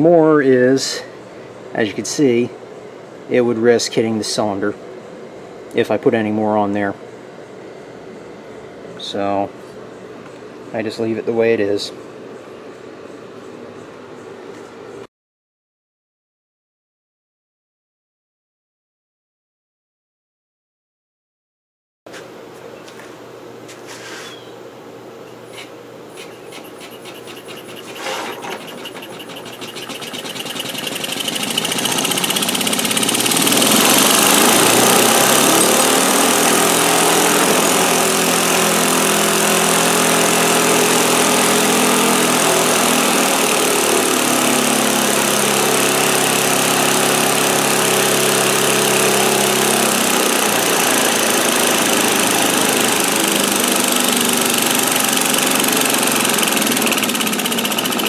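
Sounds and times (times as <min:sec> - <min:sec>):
steam engine running on air: 0:26.2 - 0:58.0.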